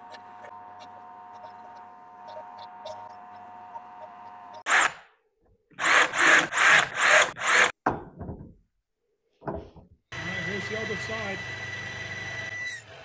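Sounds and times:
cordless drill motor whine: 10.1s - 13.0s
drill press humming: 10.1s - 13.0s.

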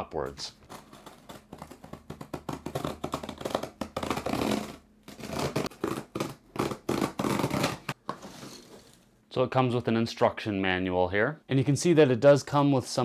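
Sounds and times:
knife slitting packing tape: 0.7s - 8.0s.

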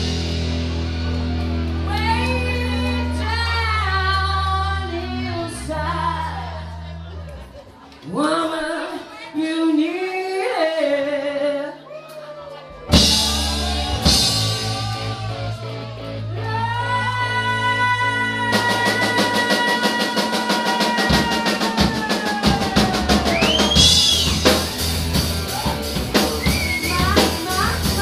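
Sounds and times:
drum kit: 0.0s - 3.4s, 12.9s - 16.6s, 18.2s - 28.0s
electric guitar: 0.0s - 6.6s.

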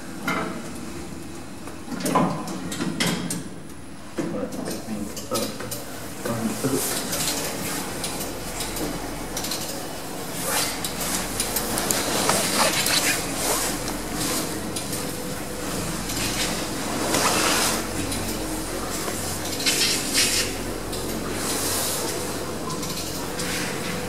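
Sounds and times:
elevator low hum: 0.0s - 24.0s
elevator car clicks and rattles: 7.0s - 11.8s, 19.1s - 21.4s.

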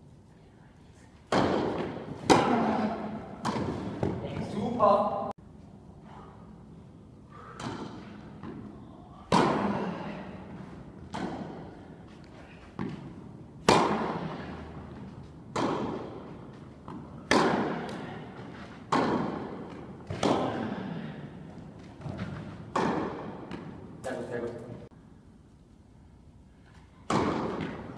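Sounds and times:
racket hitting tennis ball: 1.2s - 4.5s, 7.4s - 24.1s, 27.0s - 27.9s
tennis ball bouncing: 1.3s - 4.6s, 7.6s - 8.7s, 9.3s - 9.9s, 10.5s - 20.8s, 21.5s - 24.0s, 27.0s - 27.9s.

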